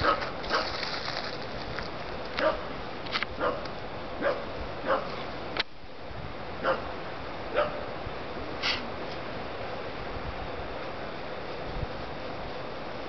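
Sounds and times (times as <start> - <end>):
dogs barking and yipping: 0.0 - 0.8, 2.4 - 2.7, 3.4 - 5.2, 6.6 - 6.9, 7.5 - 7.9.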